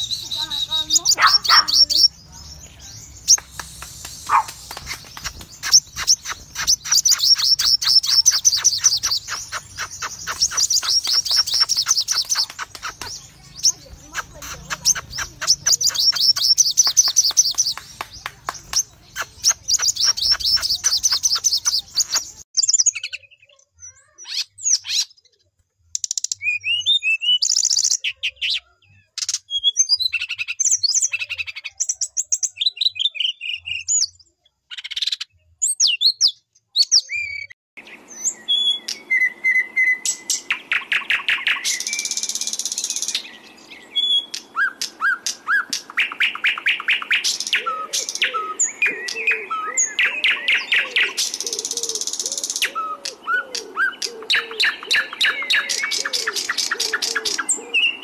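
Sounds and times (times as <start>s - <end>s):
songbird trilling: 0.0s - 17.9s, 18.7s - 25.3s, 34.7s - 58.0s
bird chirps and whistles: 3.3s - 18.1s, 19.0s - 25.1s, 26.0s - 28.6s, 34.7s - 58.0s.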